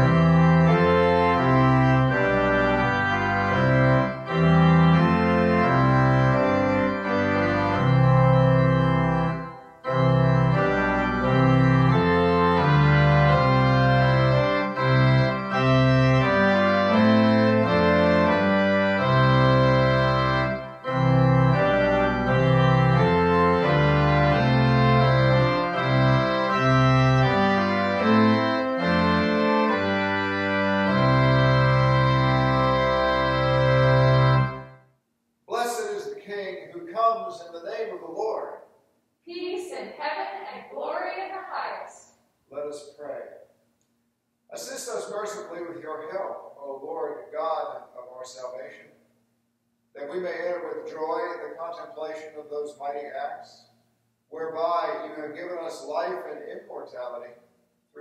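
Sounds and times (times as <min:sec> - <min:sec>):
organ playing sustained chords: 0:00.0 - 0:34.8, 0:44.5 - 0:48.9, 0:50.0 - 0:57.4.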